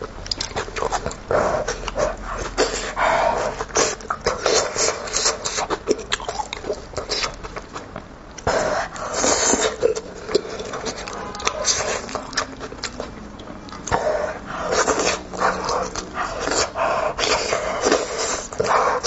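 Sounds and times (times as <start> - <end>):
lip-smacking: 0.0 - 19.0
wet chewing: 0.0 - 19.0
sucking at meat: 8.4 - 19.0.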